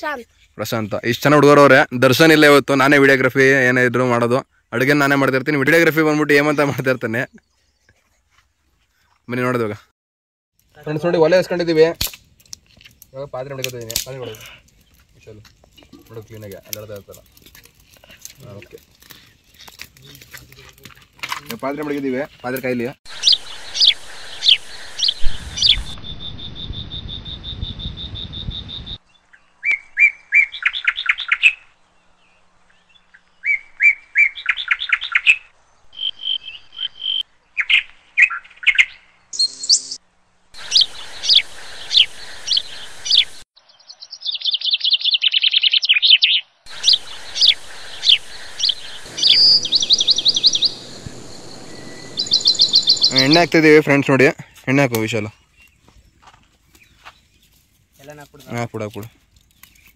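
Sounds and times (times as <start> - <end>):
birds chirping: 2.8 - 9.7, 12.9 - 17.4, 21.6 - 40.0, 40.6 - 59.9
low rumble: 24.7 - 29.0, 46.7 - 54.1
steady high tone: 46.7 - 54.1.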